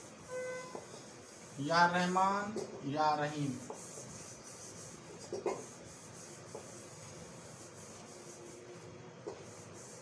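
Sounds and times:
marker squeaking on whiteboard: 0:00.2 - 0:01.4.

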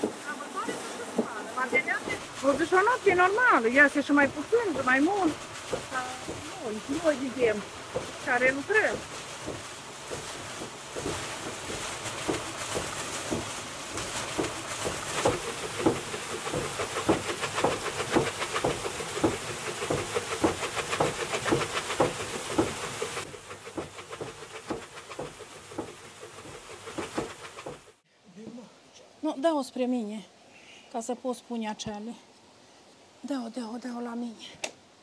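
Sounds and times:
water rushing and splashing: 0:00.0 - 0:28.0.

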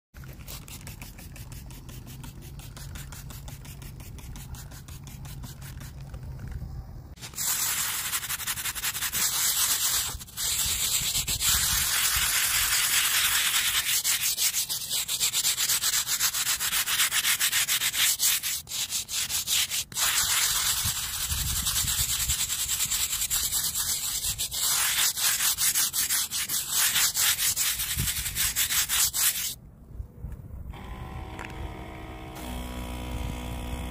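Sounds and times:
brush scrubbing wet stone: 0:00.2 - 0:06.2, 0:07.2 - 0:29.6.

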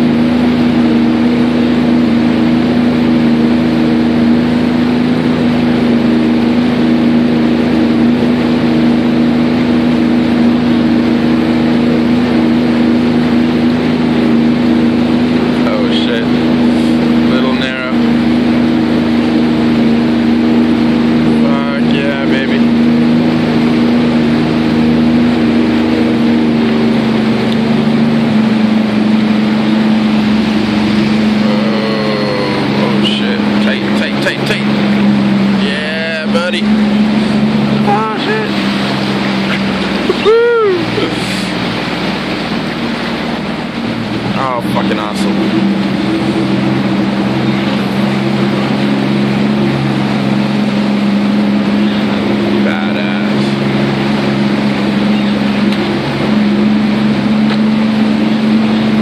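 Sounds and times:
jet ski engine humming: 0:00.0 - 0:59.0
water noise: 0:00.0 - 0:59.0.

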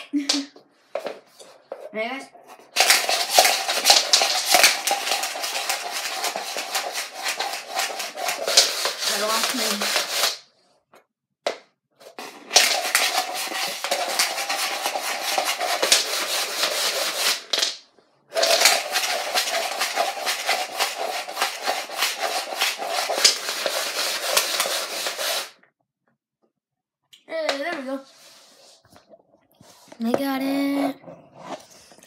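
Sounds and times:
dice rattling in plastic cup: 0:02.7 - 0:10.4, 0:12.1 - 0:25.6
dice clatter: 0:02.8 - 0:10.4, 0:12.2 - 0:25.5.

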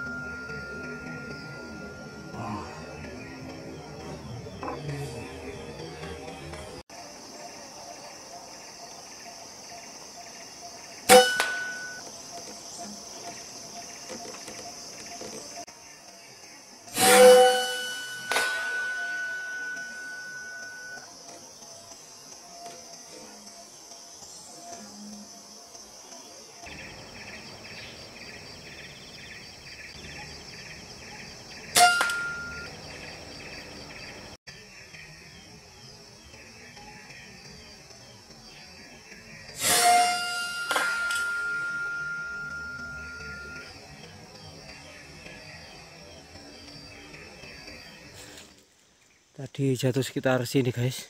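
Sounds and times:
metallic ring: 0:00.0 - 0:03.0, 0:11.1 - 0:12.0, 0:17.0 - 0:21.0, 0:31.8 - 0:32.8, 0:39.6 - 0:43.6
pulsing high-pitched chirping: 0:00.0 - 0:06.4, 0:16.9 - 0:34.4, 0:35.1 - 0:48.2
high insect drone: 0:00.0 - 0:51.0.

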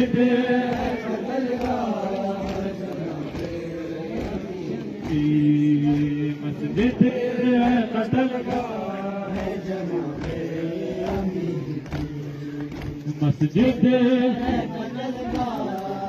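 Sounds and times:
man chanting a lament: 0:00.0 - 0:16.0.

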